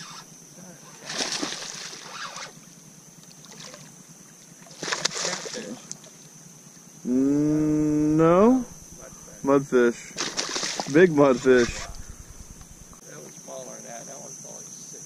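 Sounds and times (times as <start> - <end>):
fish splashing at water surface: 1.0 - 2.4, 4.6 - 6.2, 10.2 - 12.0
low voice-like call: 7.1 - 9.3.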